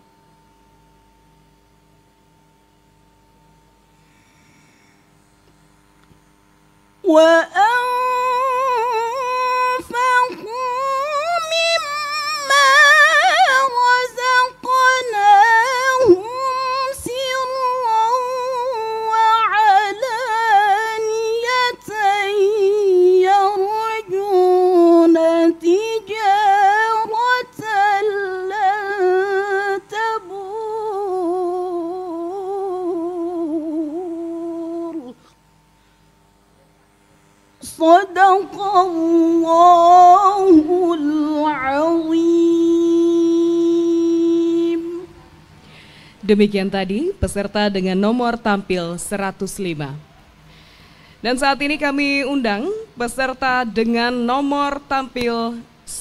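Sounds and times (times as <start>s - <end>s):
breaths: 3.9s - 5.5s, 35.2s - 36.2s, 45.6s - 46.3s, 50.4s - 51.3s
woman reciting melodically: 7.0s - 35.3s, 37.6s - 45.2s, 46.2s - 50.0s, 51.2s - 56.0s.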